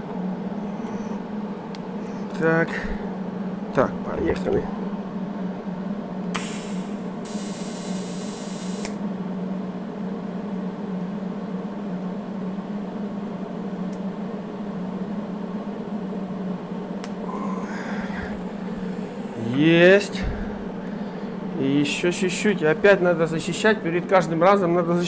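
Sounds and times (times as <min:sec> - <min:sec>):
steady hum: 0:00.0 - 0:25.0
welding hiss: 0:06.3 - 0:09.0.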